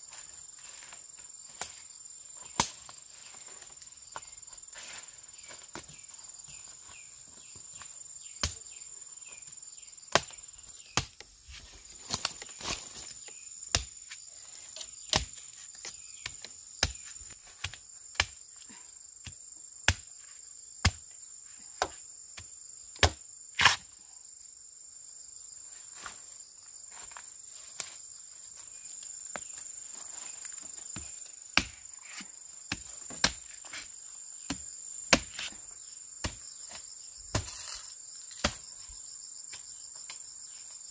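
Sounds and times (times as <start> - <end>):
high insect drone: 0.0 - 40.9
machete chopping bamboo: 2.5 - 2.9, 8.4 - 8.6, 10.1 - 11.3, 13.7 - 14.2, 14.8 - 18.4, 19.2 - 20.1, 20.8 - 21.0, 21.8 - 23.9, 31.0 - 33.9, 34.5 - 35.6, 36.2 - 38.6.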